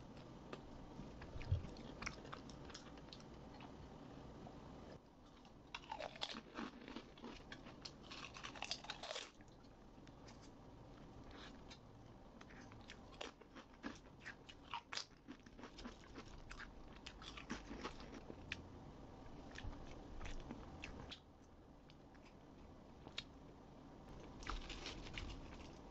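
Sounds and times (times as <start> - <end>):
chewing crunchy chips: 1.2 - 3.8, 5.3 - 10.6, 11.3 - 18.6, 24.2 - 25.9.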